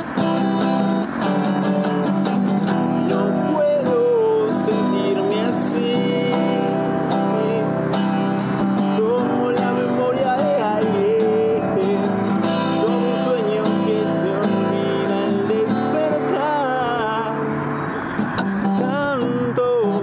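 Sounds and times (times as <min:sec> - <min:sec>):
sliding guitar melody: 0:00.0 - 0:20.0
strummed acoustic guitar: 0:00.0 - 0:20.0.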